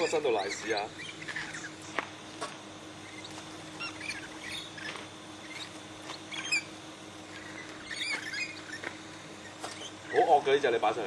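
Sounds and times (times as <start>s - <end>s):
parrots chirping and squeaking: 0.0s - 2.0s, 3.0s - 10.4s.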